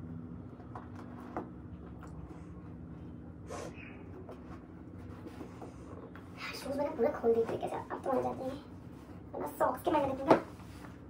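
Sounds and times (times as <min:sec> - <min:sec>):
steady low hum: 0:00.0 - 0:11.0
person sniffing: 0:03.4 - 0:03.9.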